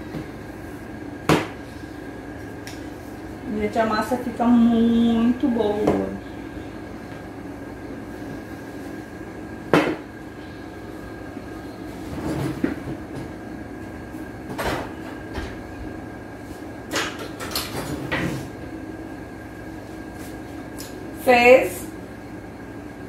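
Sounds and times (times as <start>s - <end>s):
steady hum: 0.0s - 23.0s
kitchen clatters and knocks: 16.9s - 18.4s.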